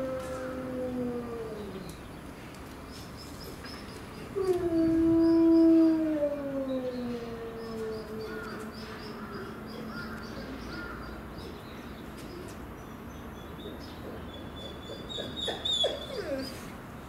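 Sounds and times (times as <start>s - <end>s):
wolf howling: 0.0s - 1.9s, 4.4s - 8.7s.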